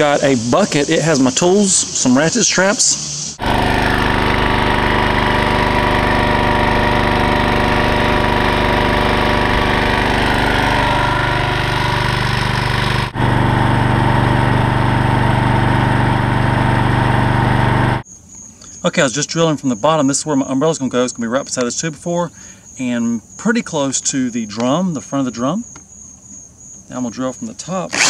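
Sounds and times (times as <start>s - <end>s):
outboard motor running: 3.4s - 18.0s.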